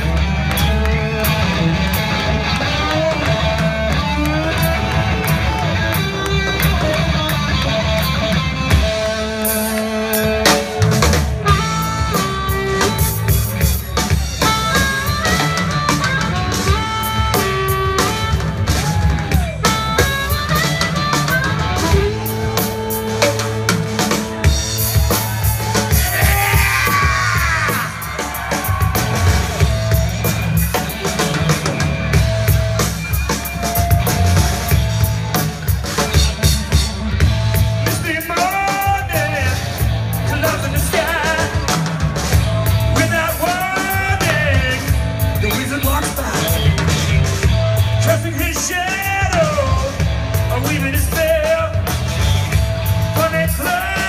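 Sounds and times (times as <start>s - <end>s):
blues band playing: 0.0s - 54.0s
electric guitar lead lines: 0.0s - 54.0s
person singing: 37.8s - 41.9s, 42.8s - 51.9s, 53.1s - 54.0s.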